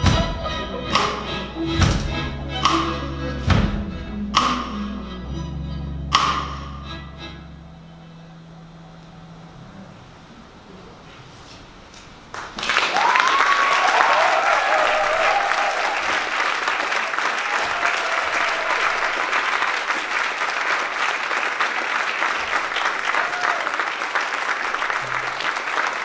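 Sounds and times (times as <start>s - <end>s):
audience applauding: 12.3s - 26.0s
crowd cheering: 12.3s - 26.0s.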